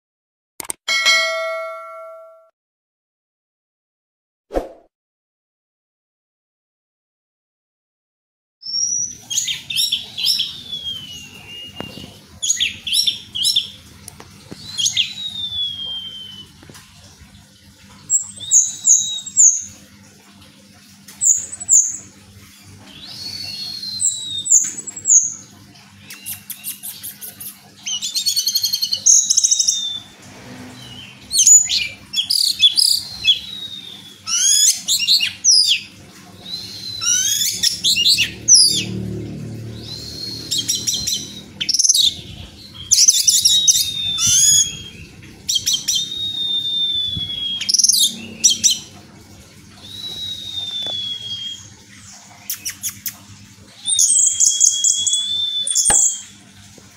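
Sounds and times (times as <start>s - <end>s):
thrush singing whistled phrases: 14.7s - 16.5s, 39.8s - 48.9s, 49.8s - 51.7s, 53.8s - 56.3s.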